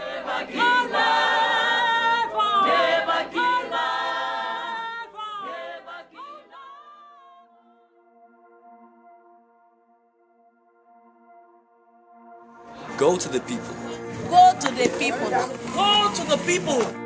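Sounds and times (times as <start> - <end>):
unaccompanied voices singing: 0.0 - 7.5, 12.8 - 17.0
held ambient music chord: 5.1 - 17.0.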